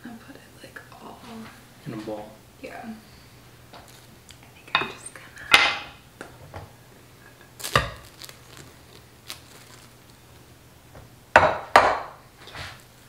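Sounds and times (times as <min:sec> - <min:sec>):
glass bowl knocking on stone: 0:11.4 - 0:12.2.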